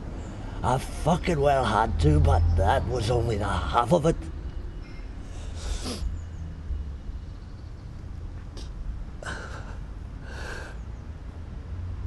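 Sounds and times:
man breathing heavily: 5.2s - 6.1s, 9.2s - 11.0s.

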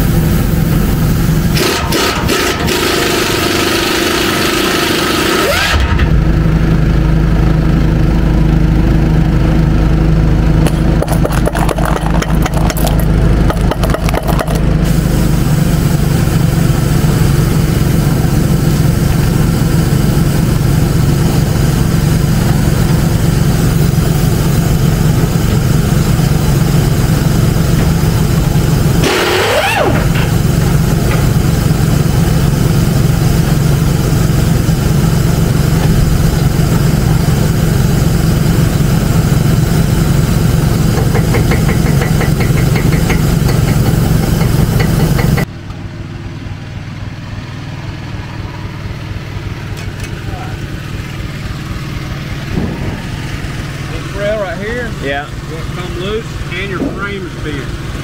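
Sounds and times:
rising and falling whine: 0.0s - 41.2s, 42.4s - 58.0s
engine running: 0.0s - 58.0s
impact wrench rattling: 10.6s - 14.7s, 41.0s - 45.5s.

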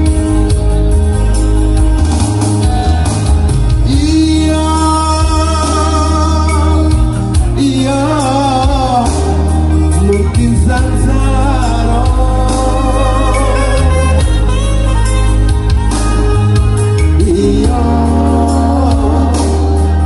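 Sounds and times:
keyboard band with heavy bass: 0.0s - 20.0s
man singing into a microphone: 3.8s - 14.5s, 17.0s - 20.0s.

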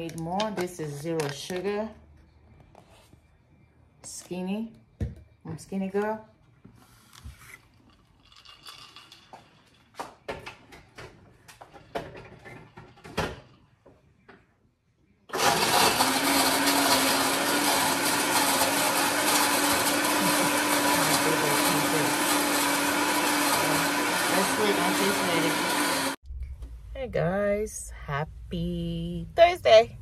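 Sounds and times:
electric blender running: 15.3s - 26.2s.

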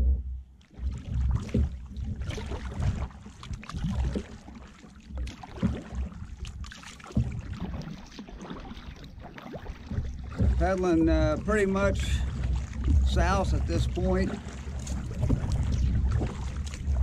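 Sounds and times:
paddle strokes splashing: 0.6s - 17.0s
wind buffeting microphone: 10.3s - 17.0s.

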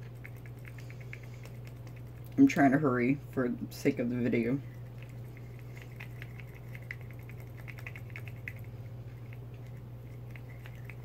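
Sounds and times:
low hum: 0.0s - 11.0s
paintbrush clicking against glass jar: 5.0s - 11.0s.

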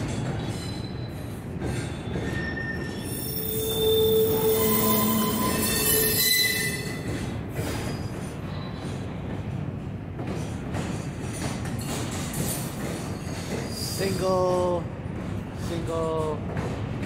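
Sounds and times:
train wheels squealing: 0.0s - 9.2s, 10.9s - 14.7s
rumble of wheels on rail: 0.0s - 17.0s.

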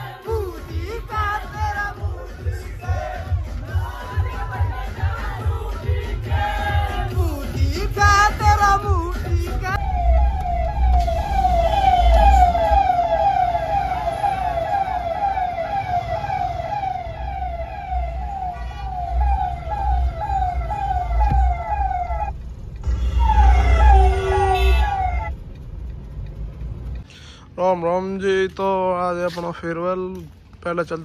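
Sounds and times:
car engine and road rumble: 0.0s - 31.0s
electronic siren warbling: 9.8s - 25.3s.

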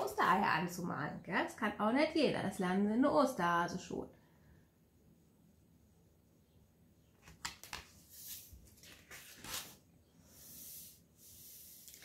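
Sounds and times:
pages turning: 7.1s - 9.9s, 10.5s - 12.0s.

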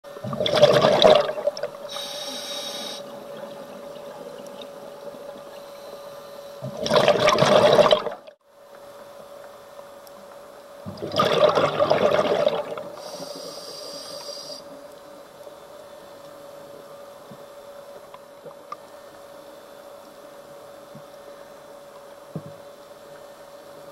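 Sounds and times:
exhaled bubbles gushing: 0.1s - 1.8s, 6.6s - 8.3s, 10.9s - 13.0s
faint steady hum: 0.1s - 23.9s
regulator hissing inhalation: 1.9s - 3.1s, 13.0s - 14.7s.

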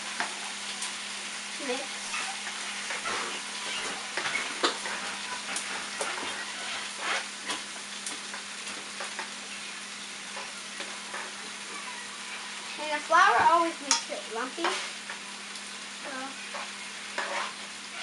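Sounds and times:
gravy sizzling in a pan: 0.0s - 18.0s
spoon scraping a pan: 2.0s - 9.4s, 10.2s - 15.3s, 16.4s - 18.0s.

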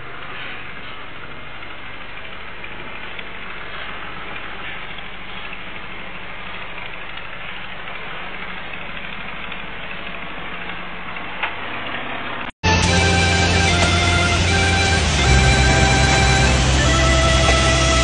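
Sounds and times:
dump truck driving past: 12.6s - 18.0s
excavator working: 12.6s - 18.0s.

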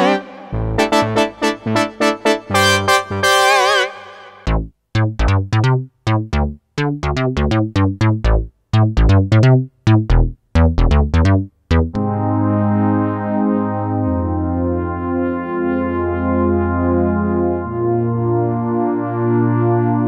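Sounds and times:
synthesizer chords with vibrato: 0.0s - 4.6s, 11.9s - 20.0s
synth bass notes: 0.0s - 20.0s.

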